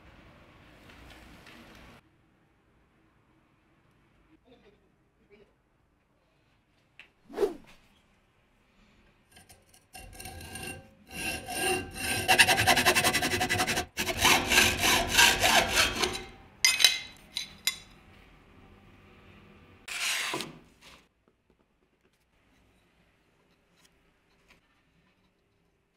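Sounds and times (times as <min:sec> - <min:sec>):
wooden board scraping on metal: 0:09.4 - 0:16.4
hacksaw cutting metal: 0:09.4 - 0:17.1.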